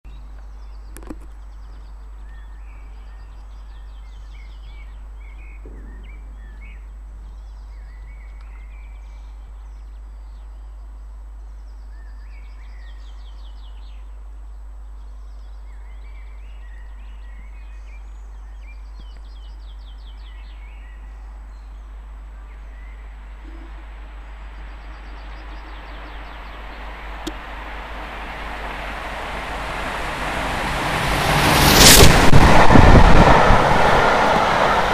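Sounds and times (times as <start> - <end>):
small birds singing: 0.1 - 29.4
steady low hum: 0.1 - 34.9
steam locomotive rushing: 25.5 - 34.9.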